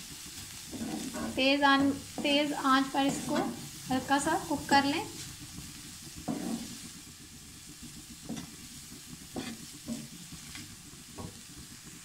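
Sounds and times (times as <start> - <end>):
vegetables sizzling in hot oil: 0.0 - 12.0
wooden spatula scraping a pan: 0.3 - 5.6, 6.2 - 7.0, 8.2 - 11.4.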